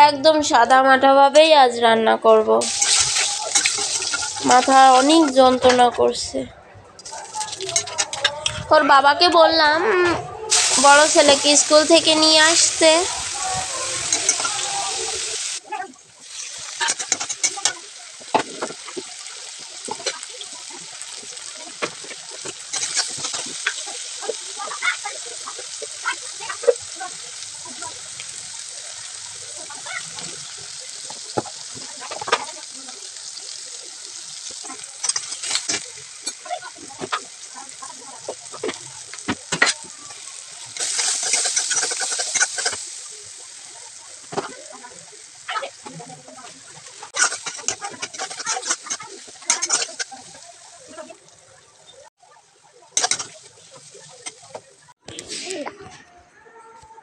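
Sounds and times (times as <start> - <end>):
onions and tomatoes sizzling in oil: 0.0 - 6.4, 7.0 - 9.7, 10.4 - 56.8
steel spoon scraping a pan: 2.7 - 5.4, 10.5 - 15.6, 16.2 - 26.8, 34.4 - 43.1, 47.0 - 50.5, 53.0 - 55.6.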